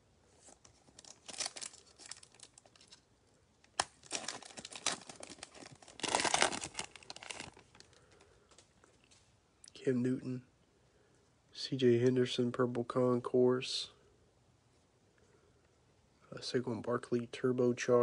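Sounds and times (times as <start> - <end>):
foil wrapper crinkling and tearing: 0.8 - 3.0, 3.7 - 8.2.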